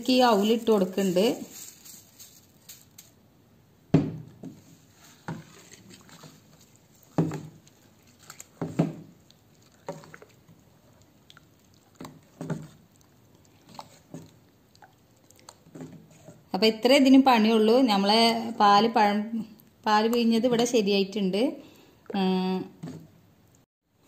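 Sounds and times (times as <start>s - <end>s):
thick liquid sloshing: 4.6s - 16.5s.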